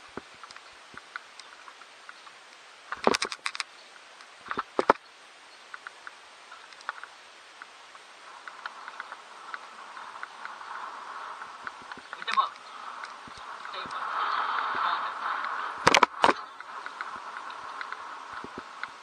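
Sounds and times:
light ticks: 0.1 - 19.0
mountain bike rattling: 8.3 - 19.0.

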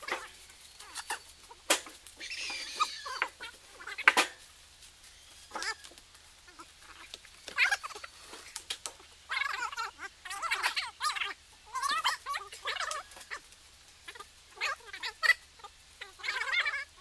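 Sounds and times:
wooden logs knocking together: 1.0 - 3.4, 4.0 - 4.5.

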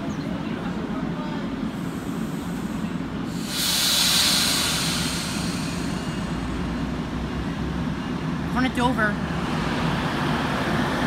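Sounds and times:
train cars rumbling past: 0.0 - 11.0
air hiss from train: 1.5 - 7.6.

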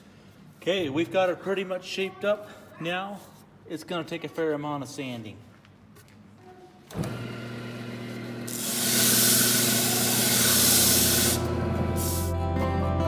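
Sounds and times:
sandpaper hissing on spinning wood: 8.5 - 12.4.

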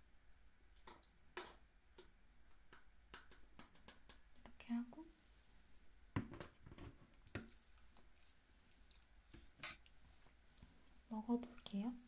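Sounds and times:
wet squishing: 7.1 - 11.9.

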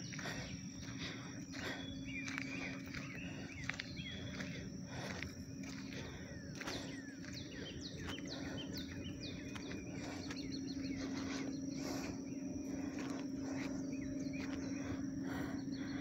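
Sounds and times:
soft footsteps: 0.0 - 15.7
constant low hum: 0.0 - 16.0
high-pitched insect drone: 0.0 - 16.0
songbird whistling: 1.8 - 4.7, 6.3 - 12.6, 13.3 - 16.0.

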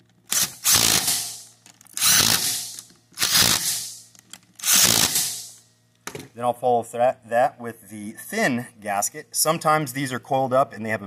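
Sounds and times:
impact driver hammering bolts: 0.3 - 4.0, 4.6 - 6.2.

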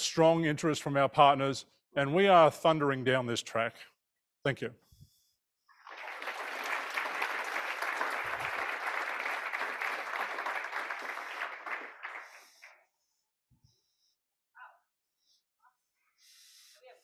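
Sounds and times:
audience applauding: 5.7 - 12.8.

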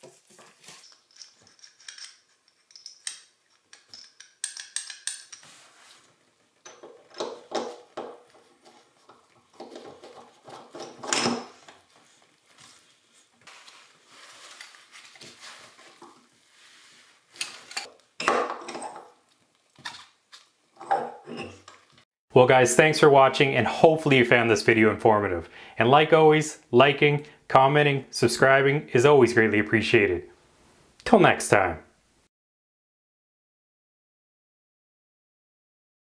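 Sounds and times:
metal parts clinking and scraping: 0.6 - 5.8, 17.3 - 17.9.

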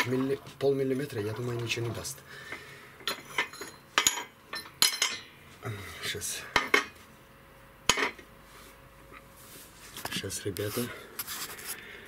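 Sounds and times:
metallic clinks and knocks: 3.0 - 5.3.

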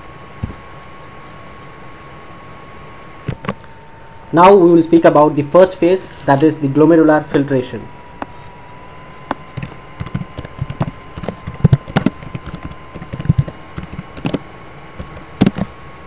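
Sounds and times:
computer keyboard typing: 9.6 - 14.4, 15.0 - 15.7.

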